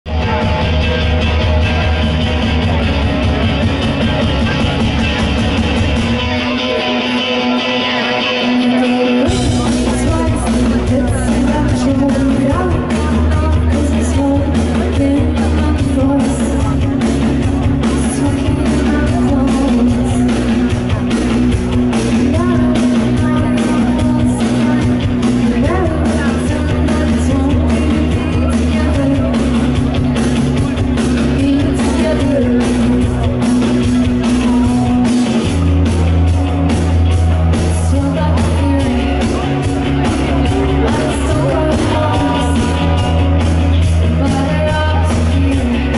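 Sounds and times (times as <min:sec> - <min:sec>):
rock band playing: 0:00.0 - 0:45.9
woman singing lead vocals: 0:07.4 - 0:36.1, 0:37.4 - 0:45.9.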